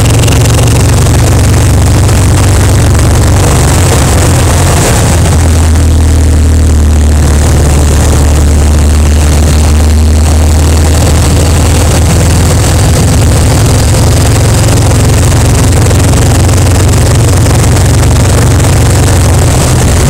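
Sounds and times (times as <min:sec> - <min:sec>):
motorcycle engine droning: 0:00.0 - 0:20.0.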